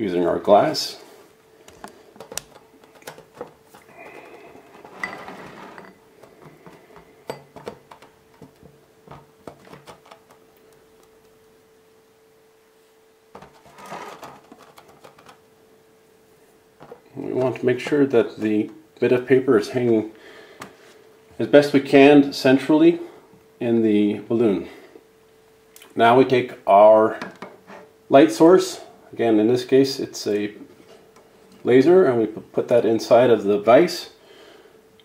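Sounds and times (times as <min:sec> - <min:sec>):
faint steady hum: 0:00.0 - 0:35.0
small taps and clicks: 0:01.7 - 0:03.6.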